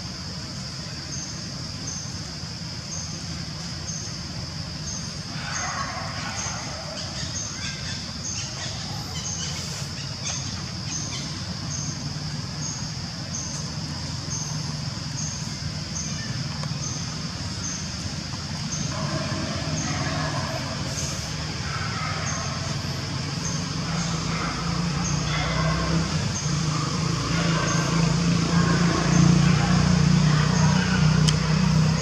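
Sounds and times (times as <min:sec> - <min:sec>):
faint calls: 0:04.9 - 0:32.0
low steady rumble: 0:10.3 - 0:32.0
steady high drone: 0:11.2 - 0:32.0.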